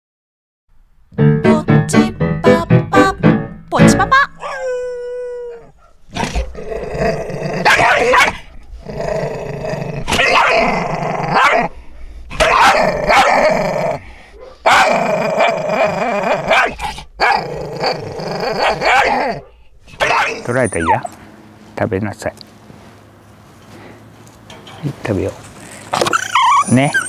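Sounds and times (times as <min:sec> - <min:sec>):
dog growling and snarling: 0:05.8 - 0:21.0
dog barking: 0:07.6 - 0:08.6, 0:10.2 - 0:10.6, 0:11.4 - 0:11.7, 0:12.4 - 0:13.4, 0:14.4 - 0:15.0, 0:16.5 - 0:17.4, 0:18.6 - 0:21.0.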